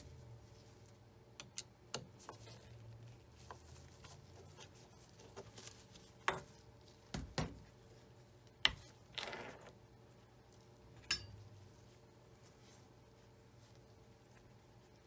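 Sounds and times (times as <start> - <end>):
small metallic clicks and taps: 1.4 - 2.1.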